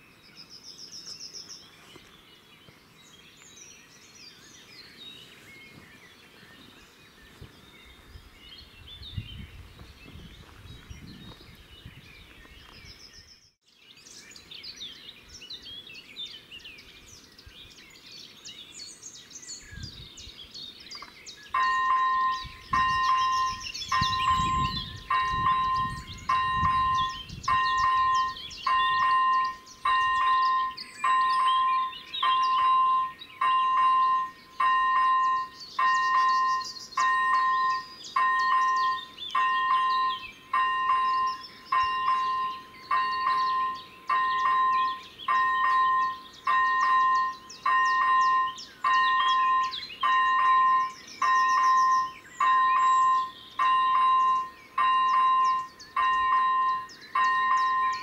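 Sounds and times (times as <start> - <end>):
birds chirping: 0.0 - 58.0
electronic crossing bell dinging: 21.6 - 58.0.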